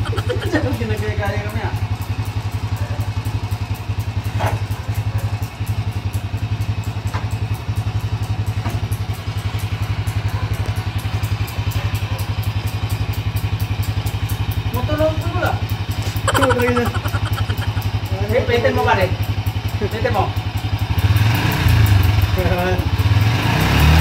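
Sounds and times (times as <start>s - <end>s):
motorcycle engine idling: 0.0s - 16.8s.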